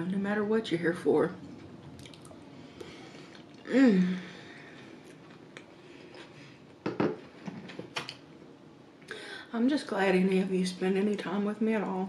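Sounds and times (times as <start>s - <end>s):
person humming while eating: 3.6s - 4.5s.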